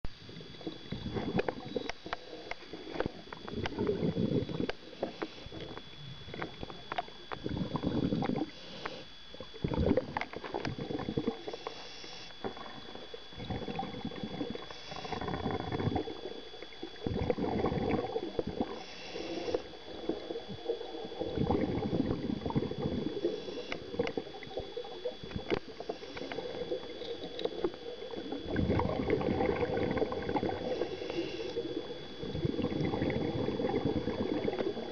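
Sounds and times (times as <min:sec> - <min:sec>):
exhaled bubbles gurgling: 0:00.1 - 0:34.9
diver inhaling through regulator: 0:03.7 - 0:05.7, 0:07.5 - 0:09.9, 0:11.2 - 0:12.4, 0:13.4 - 0:16.0, 0:17.1 - 0:19.8, 0:21.4 - 0:24.1, 0:25.7 - 0:26.8, 0:28.5 - 0:33.6.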